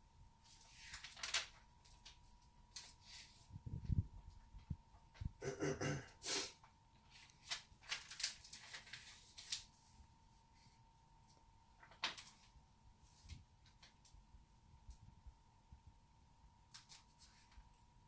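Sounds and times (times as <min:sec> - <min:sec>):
faint steady hum: 0:00.0 - 0:18.0
book pages rustling: 0:00.4 - 0:03.5, 0:07.0 - 0:10.0, 0:11.3 - 0:14.2, 0:16.7 - 0:17.7.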